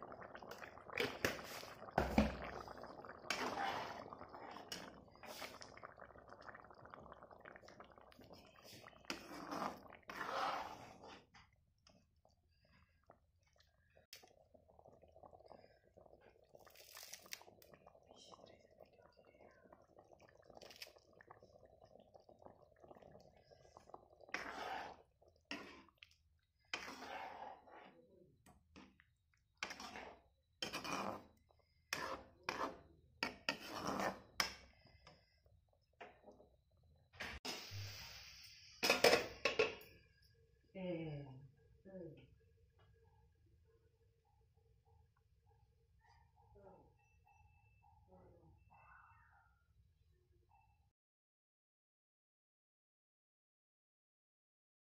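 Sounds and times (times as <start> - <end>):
gravy bubbling and crackling: 0.0 - 47.0
spatula stirring swishes: 3.3 - 5.7, 8.4 - 12.8, 23.0 - 34.7.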